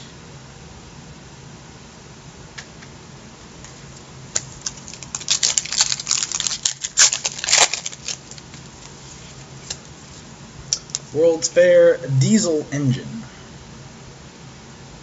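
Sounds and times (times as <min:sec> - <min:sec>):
trading cards clicking and rustling: 0:04.3 - 0:09.0.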